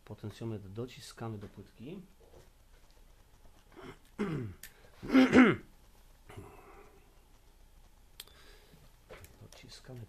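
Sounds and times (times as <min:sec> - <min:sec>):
man clearing his throat: 0:03.8 - 0:05.7.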